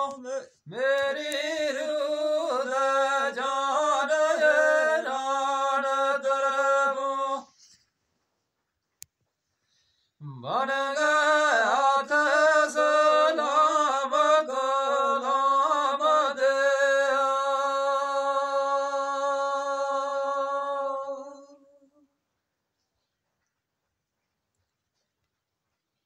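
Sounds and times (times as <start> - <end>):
man singing in high voice: 0.0 - 7.6, 10.2 - 22.1.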